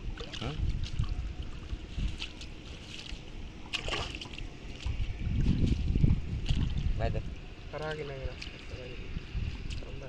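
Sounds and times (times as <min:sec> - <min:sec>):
shallow water sloshing and splashing: 0:00.0 - 0:10.0.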